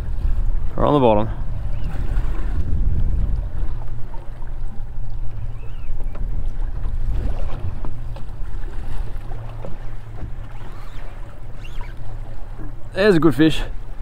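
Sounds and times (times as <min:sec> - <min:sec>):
boat low hum: 0:00.0 - 0:14.0
water splashing against hull: 0:00.0 - 0:14.0.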